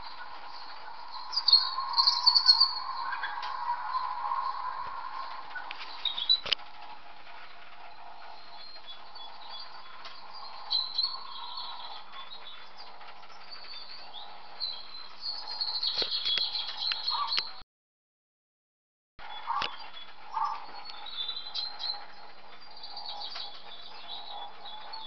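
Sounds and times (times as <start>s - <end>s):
steady background hiss: 0.0s - 13.2s
birds chirping: 0.0s - 17.6s, 19.2s - 25.0s.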